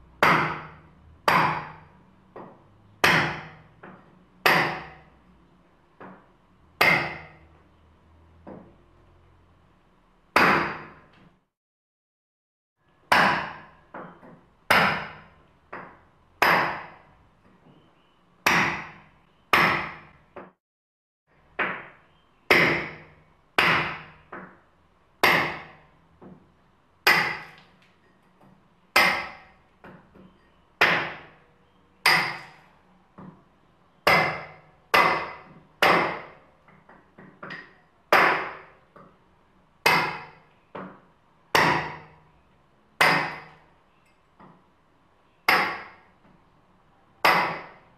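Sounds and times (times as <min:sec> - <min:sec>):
hard ringing knocks: 0:27.1 - 0:27.6, 0:29.0 - 0:30.0, 0:32.0 - 0:32.6, 0:34.1 - 0:36.4.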